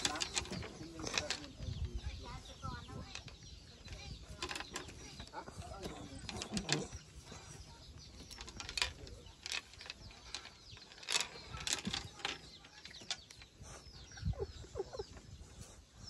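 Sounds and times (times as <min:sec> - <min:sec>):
small metal chain rattling: 0:00.0 - 0:15.1
baby monkey squeaking: 0:14.1 - 0:15.2.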